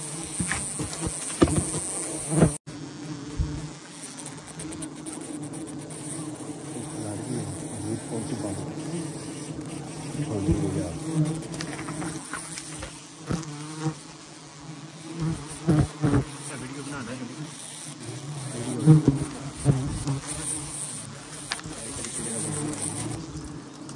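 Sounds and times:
swarm of bees buzzing: 0.0 - 23.9
knocks and thumps: 0.3 - 2.5.

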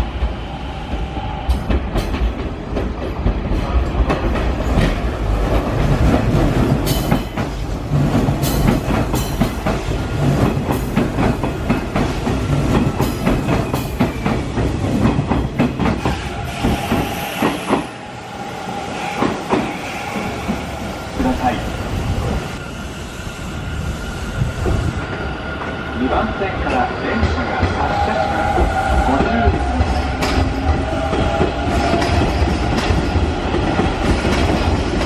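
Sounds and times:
train wheels clattering over joints: 1.5 - 17.8.

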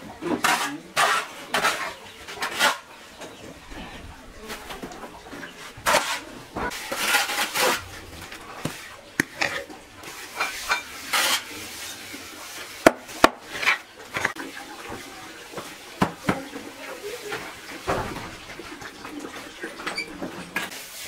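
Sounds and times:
scraping and rubbing by hand: 0.4 - 2.9, 3.5 - 12.8.

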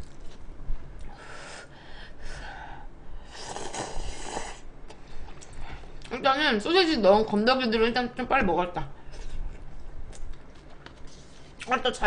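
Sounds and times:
person slurping noodles: 3.2 - 4.7.

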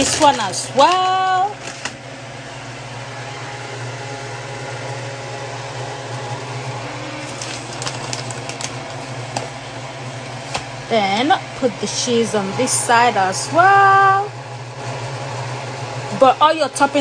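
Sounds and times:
plastic bag crinkling: 0.0 - 2.0, 7.1 - 9.6
low mechanical hum: 0.0 - 17.0.

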